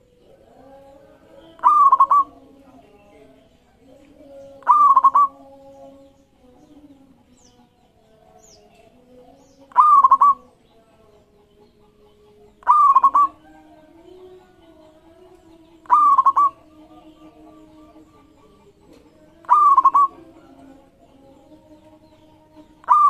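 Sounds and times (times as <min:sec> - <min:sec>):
dove cooing: 0:01.2 - 0:02.4, 0:04.6 - 0:05.4, 0:09.7 - 0:10.5, 0:12.1 - 0:20.8, 0:22.8 - 0:23.0.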